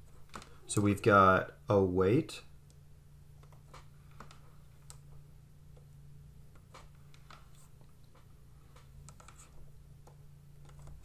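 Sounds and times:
low electrical hum: 0:00.0 - 0:11.0
pen tapping and scratching on tablet: 0:06.6 - 0:11.0.

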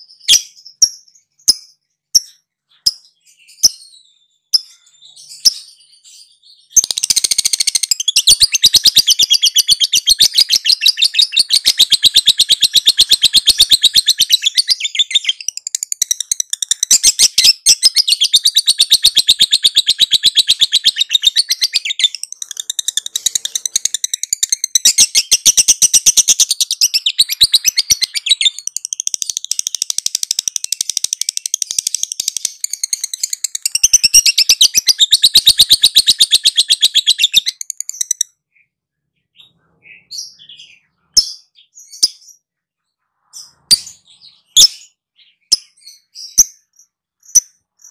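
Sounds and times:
lovebird chattering song: 0:00.0 - 0:38.7, 0:43.3 - 0:47.9.

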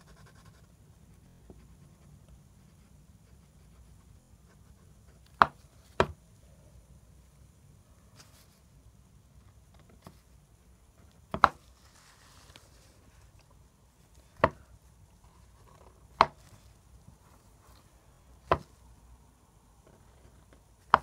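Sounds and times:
marker pen knocking on paper: 0:05.4 - 0:06.2, 0:11.3 - 0:11.6, 0:18.5 - 0:18.7.

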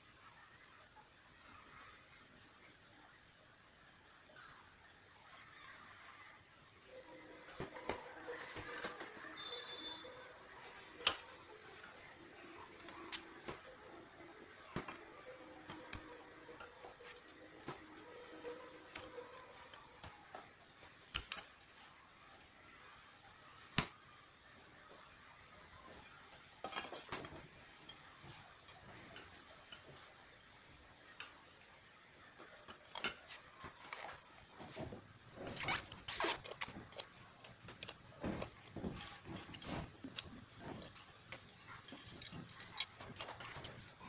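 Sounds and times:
small clicks and scrapes: 0:32.3 - 0:44.0.

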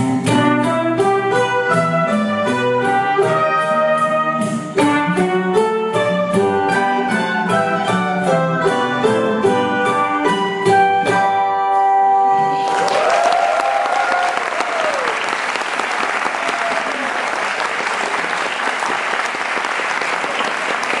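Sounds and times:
audience applauding: 0:12.5 - 0:21.0
audience cheering: 0:12.5 - 0:21.0.

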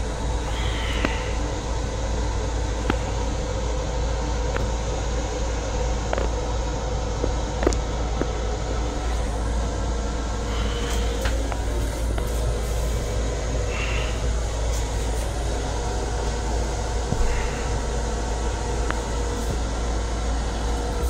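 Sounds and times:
train interior rumble and hiss: 0:00.0 - 0:21.0.

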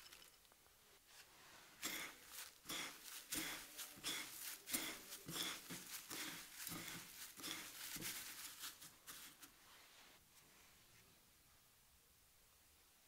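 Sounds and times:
fingers rubbing breadcrumbs in bowl: 0:01.8 - 0:09.5.

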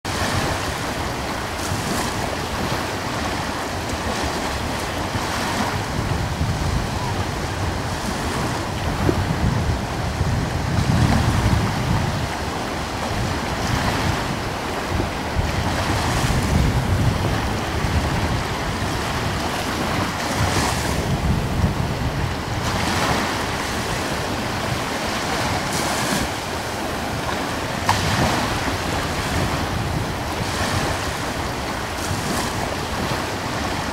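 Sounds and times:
gusty wind on microphone: 0:00.1 - 0:33.9.

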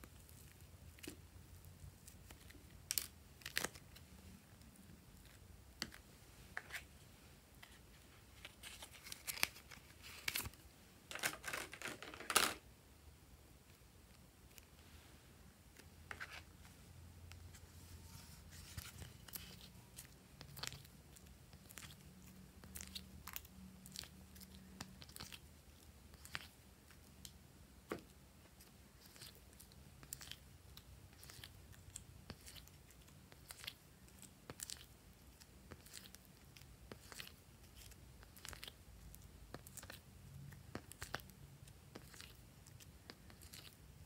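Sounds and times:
soft crunches of modelling clay: 0:13.6 - 0:44.0.

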